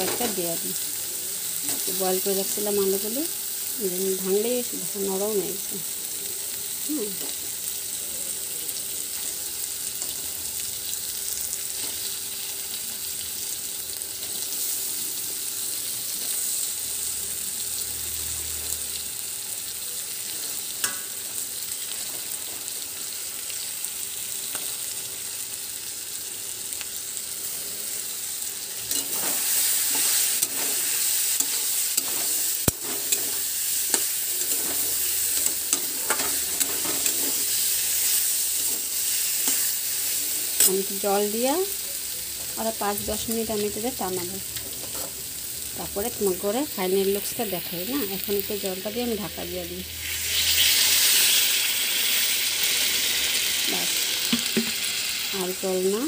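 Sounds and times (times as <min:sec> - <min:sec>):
curry sizzling in a pan: 0:00.0 - 0:56.0
spatula stirring and scraping: 0:28.9 - 0:40.8.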